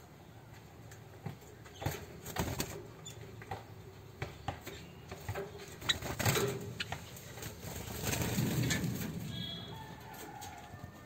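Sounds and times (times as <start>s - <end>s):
birds tapping and rustling in cage: 0.5s - 11.0s
bird chirp: 9.2s - 9.8s.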